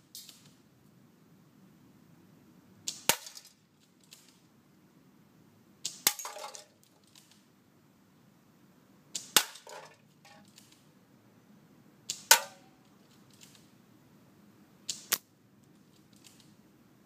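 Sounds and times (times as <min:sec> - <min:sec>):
airsoft rifle shots: 0:12.1 - 0:12.7.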